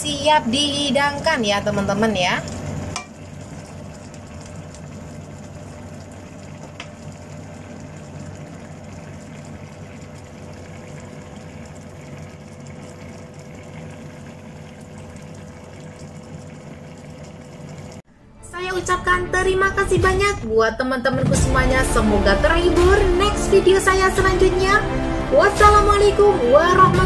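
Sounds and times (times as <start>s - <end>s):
stew bubbling in a wok: 0.7s - 18.0s.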